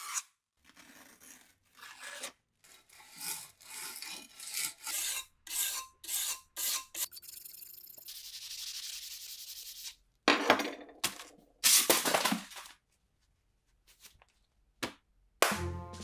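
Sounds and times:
sandpaper rubbing metal blade: 1.0s - 10.0s
music with low beat: 15.4s - 16.0s.

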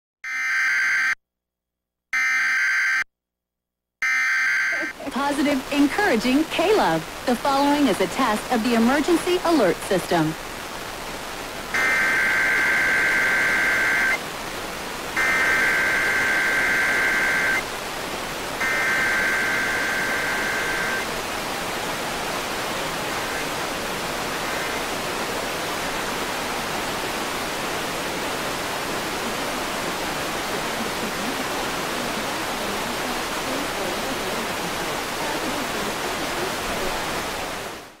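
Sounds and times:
steady hiss: 4.8s - 37.8s
buzzy digital data bursts: 11.8s - 14.2s, 15.2s - 17.6s, 18.6s - 21.0s.

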